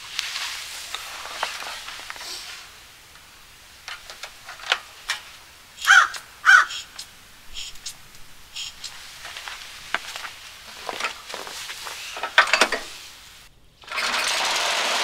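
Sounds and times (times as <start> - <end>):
crow cawing: 5.8 - 7.0.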